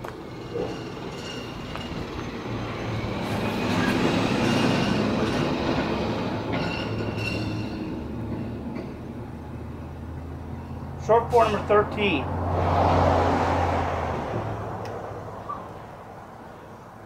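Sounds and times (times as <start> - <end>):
vehicle passing by: 9.3 - 17.0.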